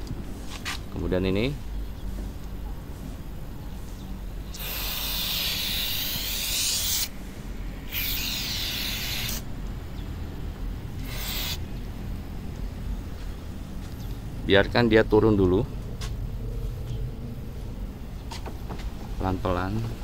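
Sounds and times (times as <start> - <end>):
aerosol spray hissing: 4.4 - 7.2, 7.8 - 9.5, 11.0 - 11.8.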